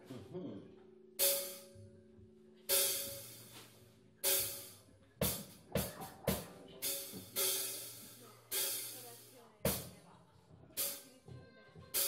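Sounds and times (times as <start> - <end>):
low held note: 0.0 - 4.8
crash cymbal hits: 1.2 - 1.8
drum strokes: 1.2 - 1.8, 2.7 - 10.0.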